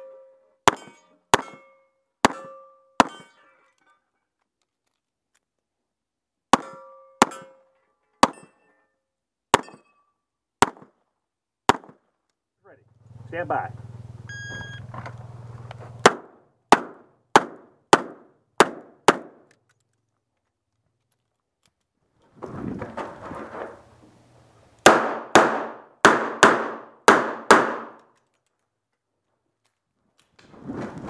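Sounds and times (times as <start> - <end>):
revolver gunshots: 16.0 - 19.4, 24.8 - 28.0.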